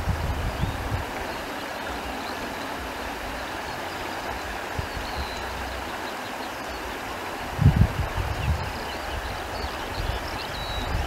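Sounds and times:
wind gusting against microphone: 0.0s - 3.4s, 7.0s - 11.0s
wind blowing: 0.0s - 11.0s.

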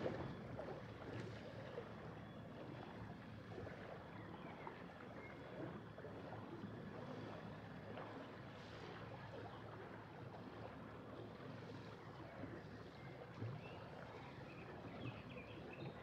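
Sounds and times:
water moving along hull: 0.0s - 16.0s.

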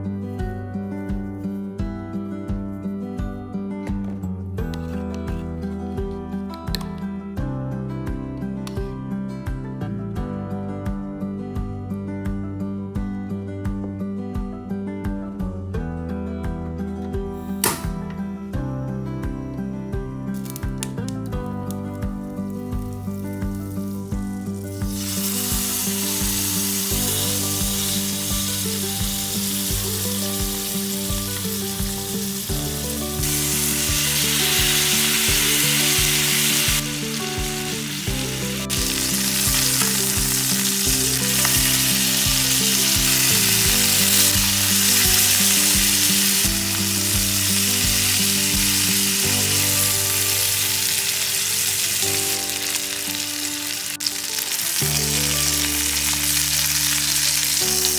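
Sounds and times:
background music with steady beat: 0.0s - 57.9s
chicken sizzling in a skillet: 22.5s - 57.9s.

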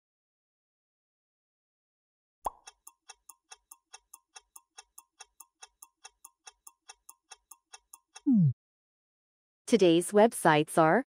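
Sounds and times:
clock ticking: 2.5s - 8.3s.

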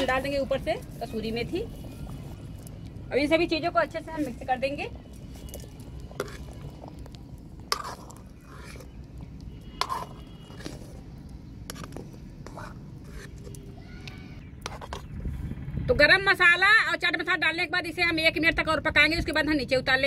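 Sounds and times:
metal ladle scraping a metal pan: 6.1s - 6.6s, 7.6s - 9.0s, 9.6s - 11.0s, 11.7s - 13.6s
low steady rumble: 14.4s - 19.1s.

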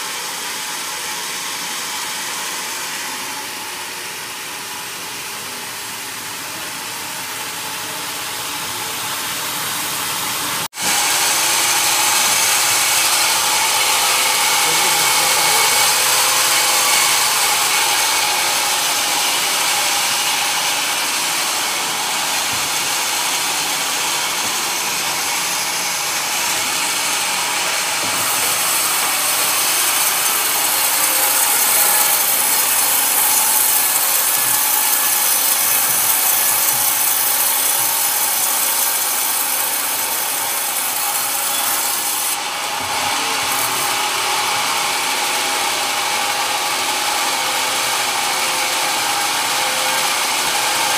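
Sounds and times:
band saw ripping wood: 27.8s - 44.1s.

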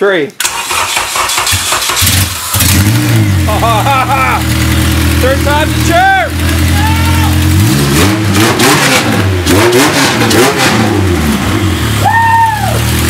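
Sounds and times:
car engine revving and idling: 1.2s - 13.0s
person calling out: 5.6s - 7.5s.

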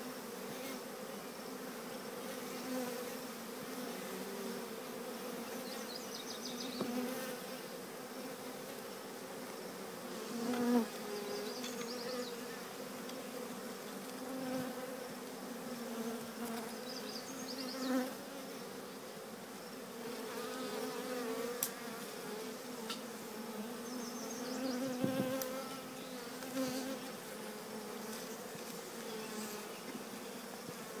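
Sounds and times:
bees flying past: 0.0s - 31.0s
swarm of bees buzzing: 0.0s - 31.0s.

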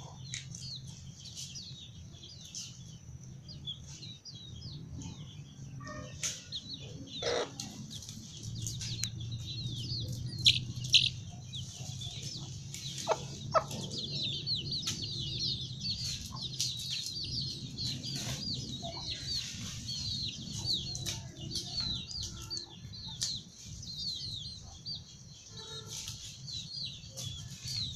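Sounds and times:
chicks peeping: 0.0s - 27.9s
hen clucking: 6.8s - 8.8s, 9.4s - 16.7s.

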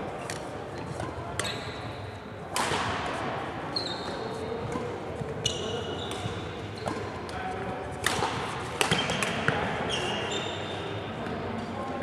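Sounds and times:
sneaker squeaks on floor: 1.4s - 2.0s, 3.7s - 7.2s, 8.9s - 11.0s
badminton racket hits: 2.5s - 3.2s, 4.1s - 9.7s.

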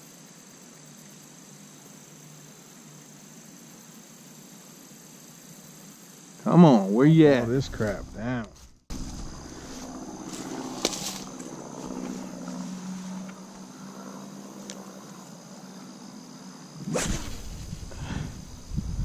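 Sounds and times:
high drone of insects: 0.0s - 19.0s
faint low hum: 6.5s - 19.0s
footsteps through tall grass: 7.7s - 13.6s.

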